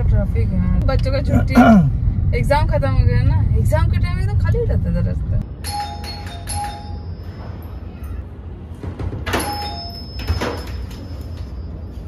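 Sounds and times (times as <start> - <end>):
electronic doorbell chime: 5.6 - 7.7, 9.3 - 12.0.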